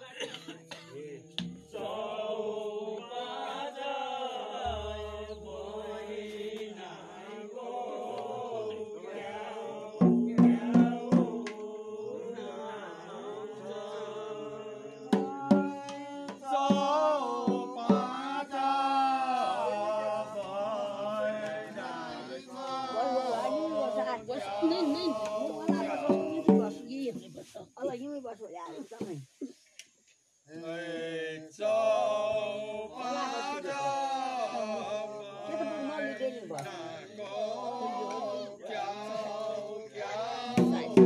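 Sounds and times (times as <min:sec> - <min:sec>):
men chanting a song: 0:00.7 - 0:27.2, 0:30.5 - 0:41.0.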